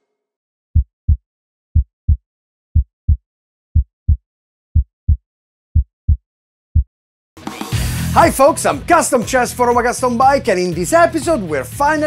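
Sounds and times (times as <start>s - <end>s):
heartbeat thumps: 0.8s - 1.2s, 1.8s - 2.2s, 2.8s - 3.2s, 3.8s - 4.2s, 4.8s - 5.2s, 5.8s - 6.2s.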